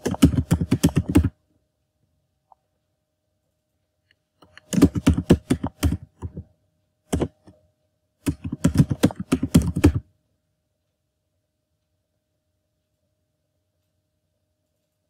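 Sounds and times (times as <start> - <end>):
typing on computer keyboard: 0.0 - 1.4, 4.4 - 6.5, 7.1 - 7.5, 8.2 - 10.0.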